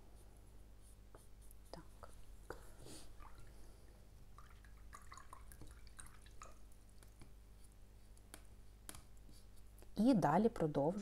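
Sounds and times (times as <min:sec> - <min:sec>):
paintbrush strokes on paper: 0:00.0 - 0:03.4, 0:07.0 - 0:10.0.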